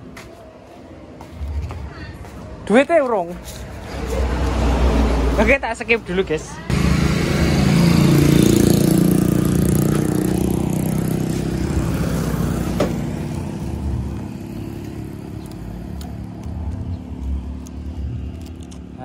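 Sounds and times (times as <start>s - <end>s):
motorcycle engine running: 6.7s - 19.0s.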